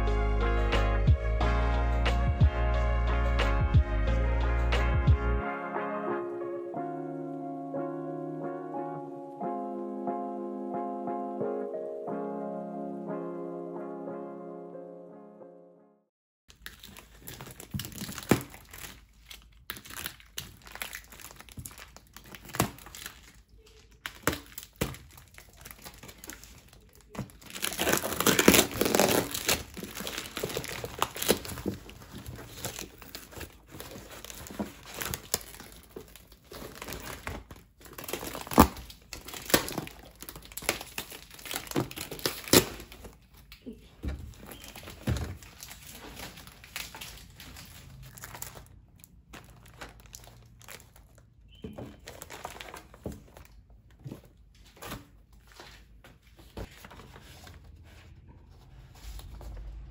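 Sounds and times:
plastic tearing and rustling: 16.5s - 57.8s
plastic wrapping crinkling: 16.5s - 57.8s.

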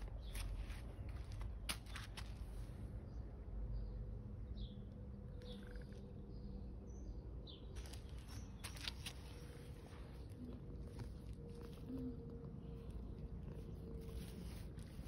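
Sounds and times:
faint bird chirps: 4.6s - 7.1s
cat fur rubbing on microphone: 13.3s - 15.0s.

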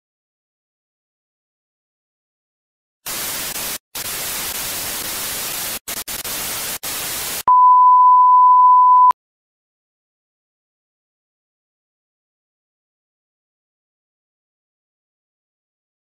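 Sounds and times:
white-noise static hiss: 3.1s - 7.5s
steady pure test tone beep: 7.5s - 9.2s.

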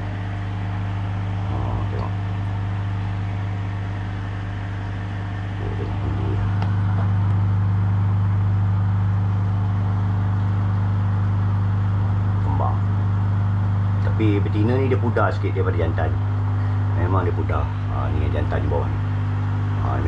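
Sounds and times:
aquarium pump humming: 0.0s - 20.0s.

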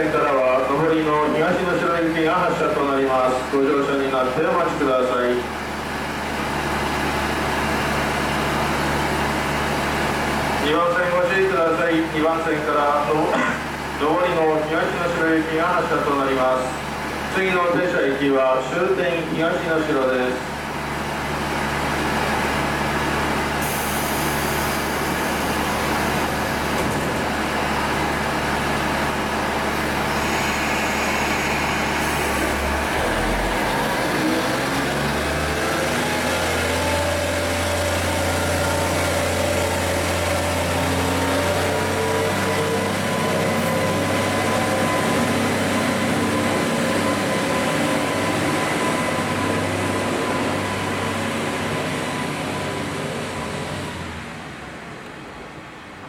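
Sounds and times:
diesel railcar engine droning: 0.0s - 56.0s.

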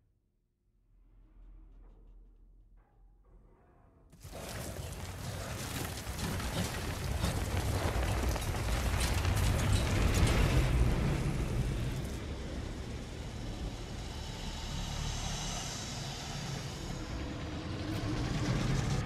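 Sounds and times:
mud spattering onto deck: 4.2s - 11.8s
deep rumble: 4.2s - 19.0s.

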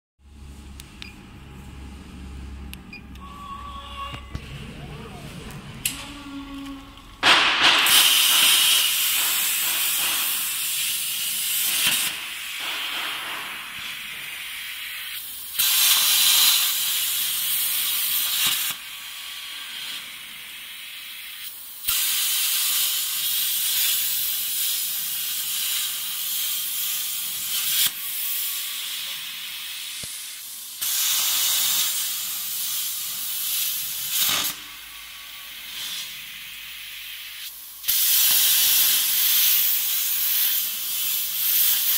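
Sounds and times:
plasma arc hissing: 5.8s - 41.9s.

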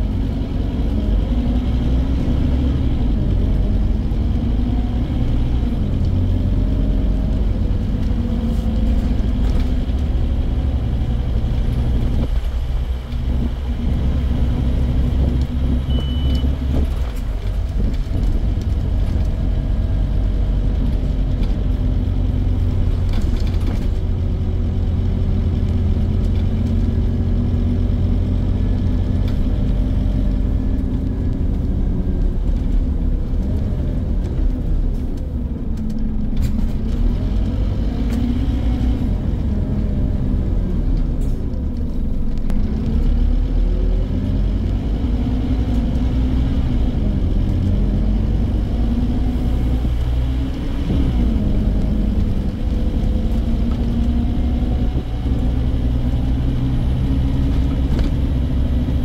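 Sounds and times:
bus diesel engine running: 0.0s - 59.0s
brief high beep: 15.9s - 16.5s.

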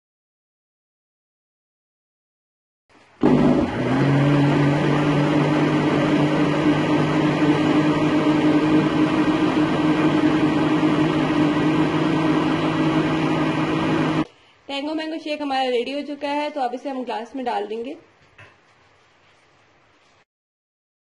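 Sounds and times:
blender motor running: 3.2s - 14.3s.

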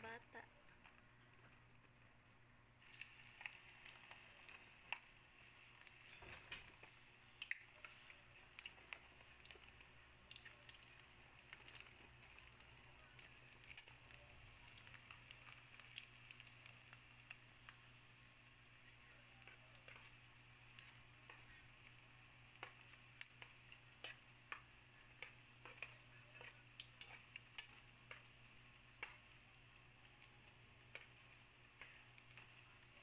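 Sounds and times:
food deep-frying in oil: 2.8s - 33.0s.

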